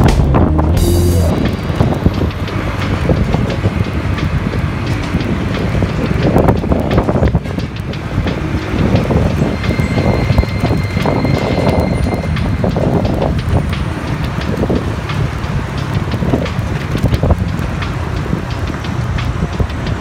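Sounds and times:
motorcycle engine: 0:00.0 - 0:04.4
wind buffeting microphone: 0:00.0 - 0:20.0.

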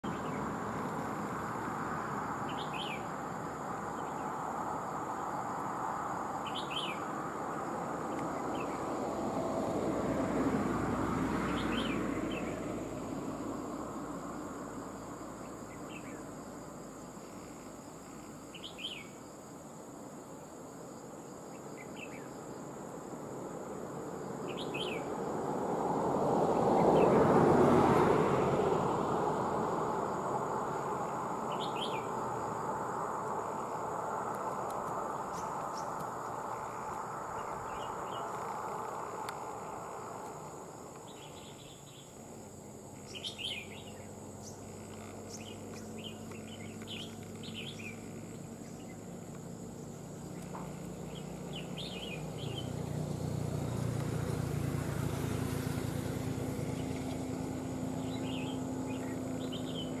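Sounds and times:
birds chirping: 0:02.4 - 0:03.1, 0:06.4 - 0:07.2, 0:24.4 - 0:25.1, 0:31.0 - 0:32.2, 0:33.2 - 0:53.1, 0:56.6 - 1:00.0.

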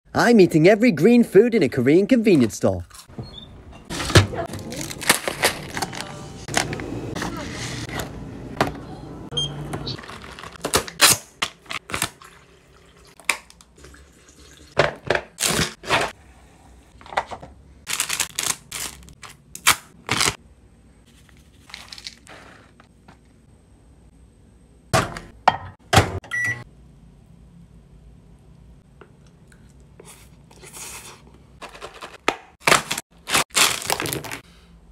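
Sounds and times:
food packages knocking and rustling: 0:31.6 - 0:34.4.

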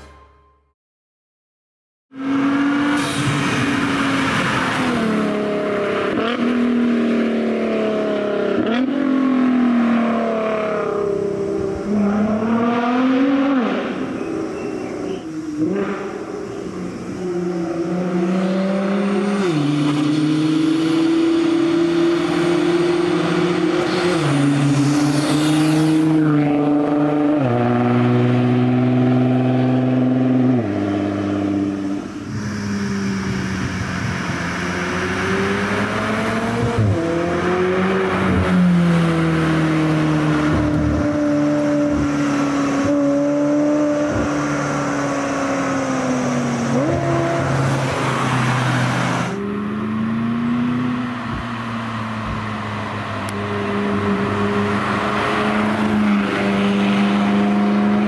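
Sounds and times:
car engine accelerating through upshifts: 0:02.2 - 0:58.0
car passing by: 0:18.1 - 0:30.3, 0:41.8 - 0:58.0.

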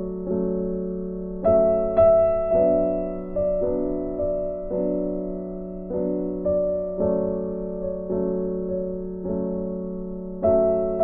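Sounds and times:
slow piano melody: 0:00.0 - 0:11.0.

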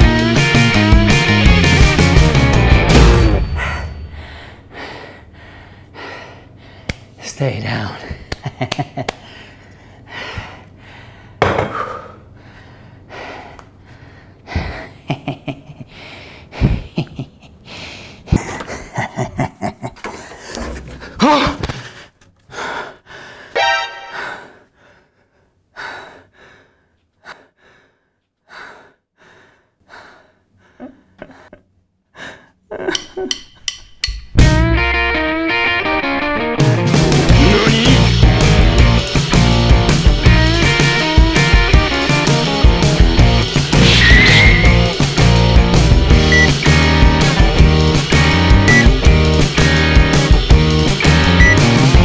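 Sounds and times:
man gasping: 0:09.2 - 0:15.0, 0:20.0 - 0:32.8, 0:37.3 - 0:39.0
sparse background music: 0:34.4 - 0:52.0.

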